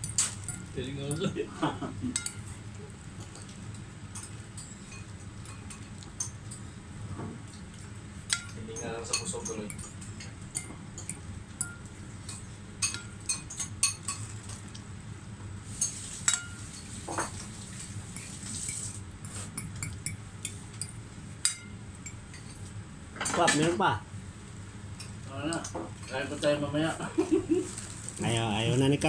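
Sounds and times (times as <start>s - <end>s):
cutlery clinking on plates: 8.3s - 14.6s.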